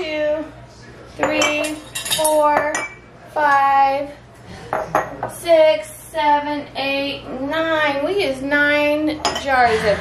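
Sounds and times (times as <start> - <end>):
woman speaking: 0.0 - 0.5, 1.2 - 4.2, 5.3 - 10.0
glass jars clinking: 1.2 - 3.0.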